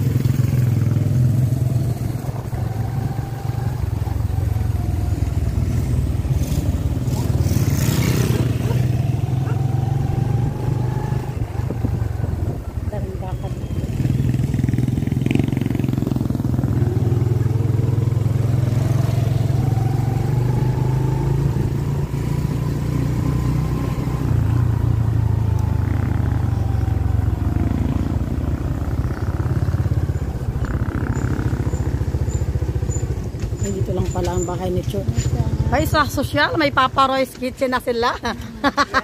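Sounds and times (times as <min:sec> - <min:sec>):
motorcycle engine running: 0:00.0 - 0:39.0
road noise: 0:00.0 - 0:39.0.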